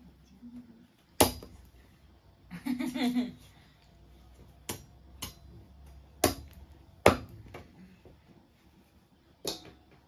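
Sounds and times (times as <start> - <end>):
cleaver chopping on wooden block: 6.2 - 7.4.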